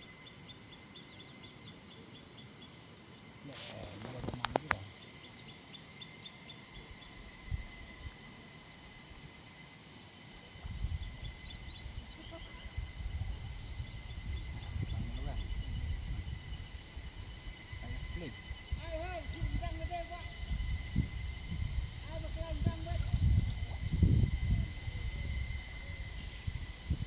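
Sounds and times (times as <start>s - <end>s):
insects chirping and trilling: 0.0s - 27.0s
sharp clicks: 4.0s - 4.9s.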